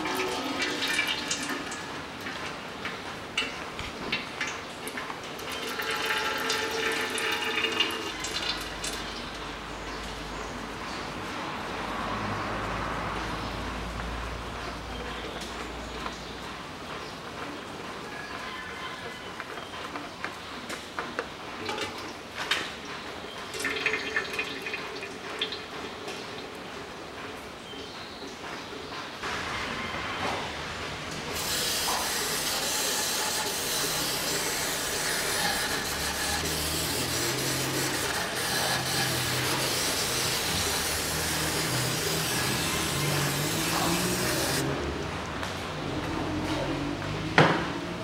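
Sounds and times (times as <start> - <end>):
oil trickling in thin stream: 0.0 - 2.6, 4.0 - 9.6, 23.5 - 26.5
oil dripping: 0.0 - 10.1, 23.5 - 26.6, 31.3 - 44.7.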